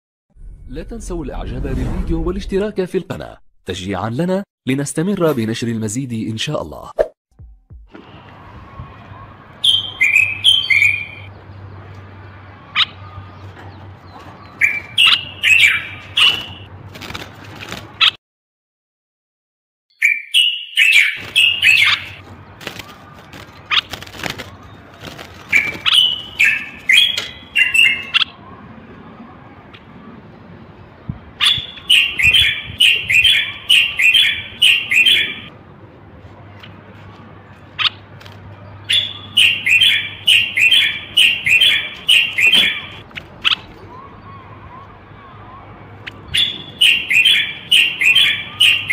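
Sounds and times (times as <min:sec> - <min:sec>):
bulbul singing: 0:08.1 - 0:11.5, 0:14.4 - 0:16.7, 0:19.9 - 0:28.5, 0:31.4 - 0:35.5, 0:38.8 - 0:48.9.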